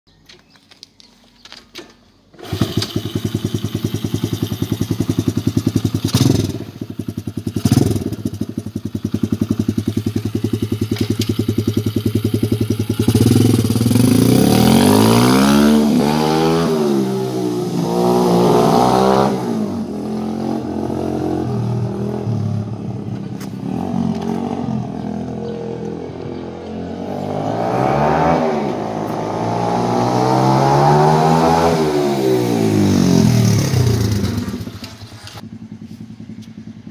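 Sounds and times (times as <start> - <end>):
pit bike engine: 2.3 - 36.9.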